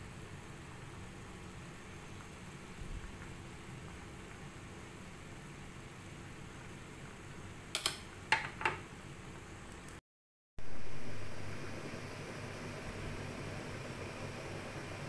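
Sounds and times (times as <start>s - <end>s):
water simmering in a frying pan: 0.0s - 10.0s.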